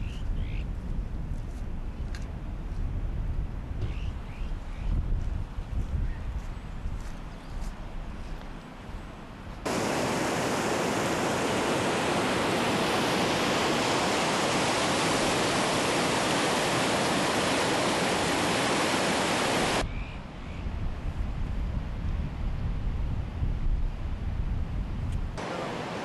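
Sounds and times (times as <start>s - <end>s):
rushing floodwater: 9.7s - 19.8s, 25.4s - 26.0s.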